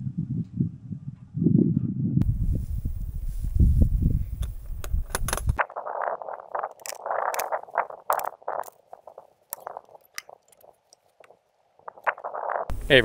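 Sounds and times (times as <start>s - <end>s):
wind rumbling on microphone: 0.0s - 13.0s
latches clicking: 4.4s - 5.6s.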